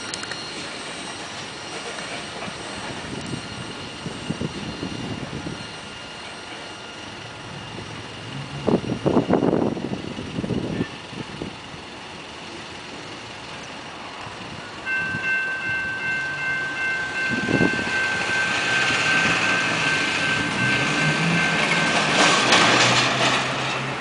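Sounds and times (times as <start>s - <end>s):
freight train rolling on rails: 0.0s - 24.0s
metallic wheel squeal: 0.3s - 7.2s
truck engine passing: 18.0s - 24.0s.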